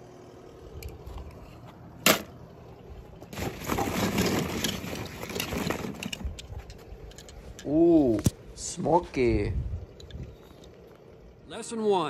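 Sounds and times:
toy cars rattling and scraping: 3.3 - 7.8.

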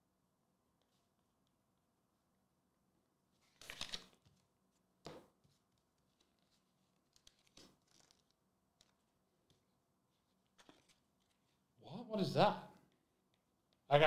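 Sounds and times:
paper rustling: 3.4 - 11.6.

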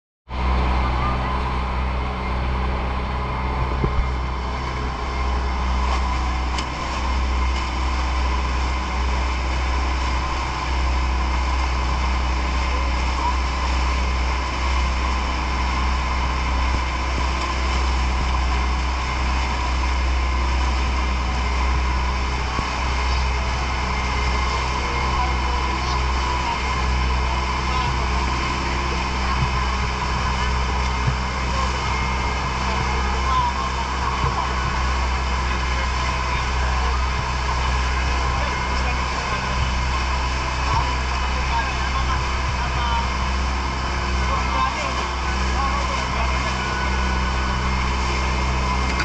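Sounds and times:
boat engine droning: 0.3 - 49.0.

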